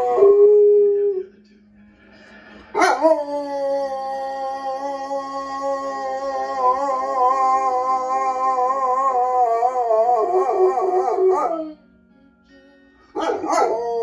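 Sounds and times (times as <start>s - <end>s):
dog howling: 2.8s - 11.8s, 13.2s - 14.0s
song playing: 9.8s - 14.0s.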